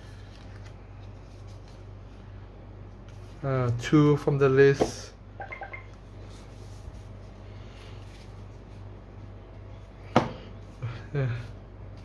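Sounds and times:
cards rustling on a playmat: 0:00.0 - 0:02.3
steady low hum: 0:00.0 - 0:12.0.

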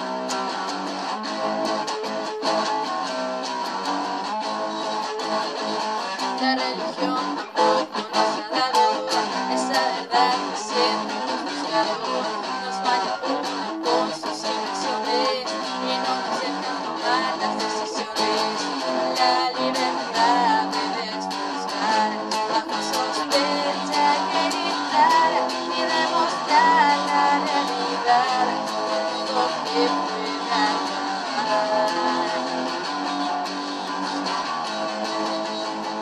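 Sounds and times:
electric guitar playing: 0:00.0 - 0:36.0.

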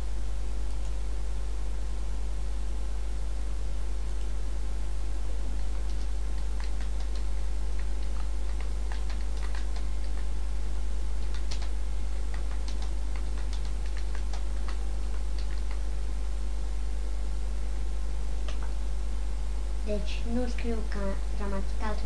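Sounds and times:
steady low hum: 0:00.0 - 0:22.0
keyboard keys clicking: 0:05.8 - 0:10.3, 0:11.2 - 0:15.8.

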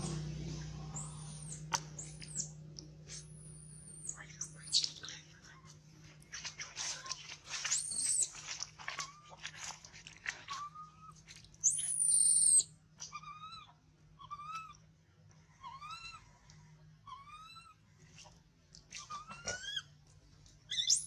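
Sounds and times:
whimpering calls: 0:00.0 - 0:05.2
scratchy rustling and crunching: 0:05.2 - 0:11.5
shrill high squeal: 0:11.7 - 0:12.6
infant monkey crying: 0:11.7 - 0:14.8, 0:15.6 - 0:16.3, 0:17.1 - 0:17.8, 0:19.0 - 0:19.9.

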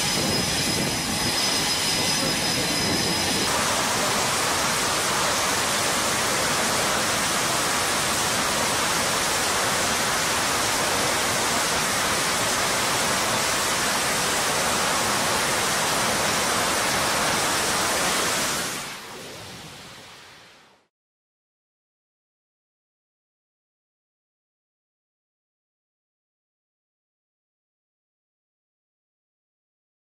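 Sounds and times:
jet engines roaring: 0:00.0 - 0:19.8.

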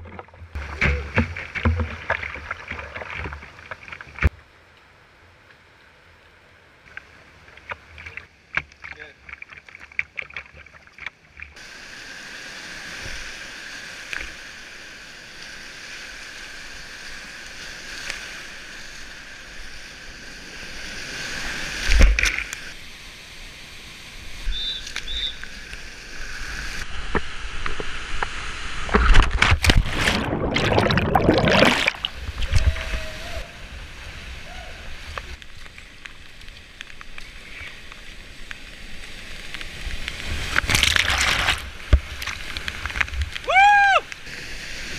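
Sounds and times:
paddle strokes: 0:00.0 - 0:04.4
water splashing: 0:00.0 - 0:04.4, 0:06.9 - 0:14.8, 0:24.3 - 0:44.9.

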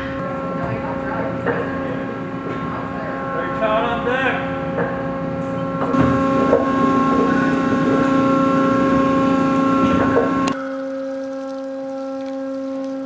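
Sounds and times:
humming tone: 0:04.7 - 0:13.0.

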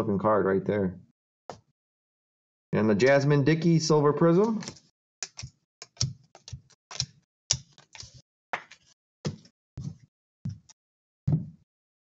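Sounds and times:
trading cards clicking and snapping: 0:04.4 - 0:09.5.

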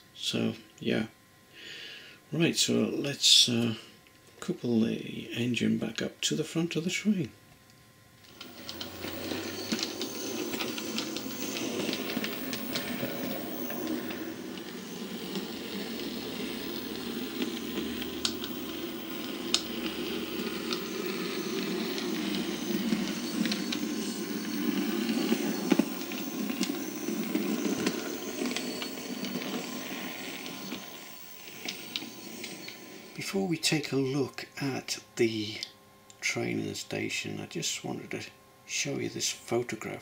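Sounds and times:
wheels clicking over rail joints: 0:08.3 - 0:33.2
model train motor hum: 0:08.3 - 0:33.3.

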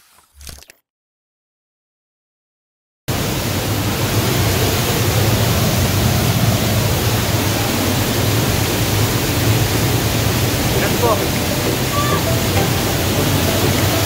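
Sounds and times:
waterfall rushing: 0:03.1 - 0:14.0.

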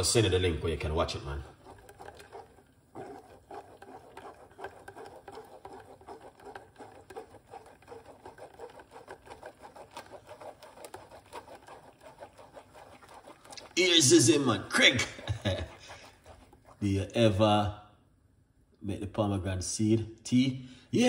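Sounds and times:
metal spoon scraping sieve: 0:01.0 - 0:17.1.

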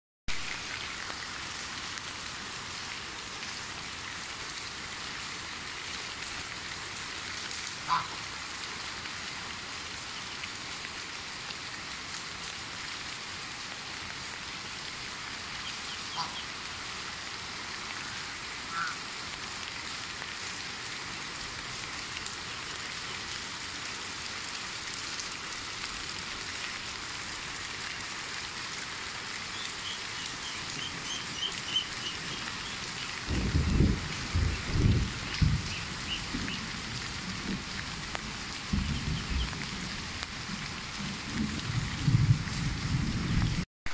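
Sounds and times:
rain falling on dirt: 0:00.3 - 0:43.9
poultry calls: 0:07.9 - 0:08.2, 0:15.6 - 0:16.5, 0:29.8 - 0:33.1.

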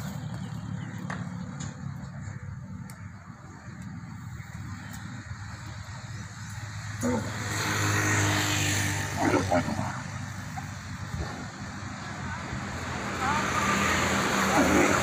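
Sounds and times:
camel bellowing: 0:06.9 - 0:10.8, 0:14.2 - 0:15.0.

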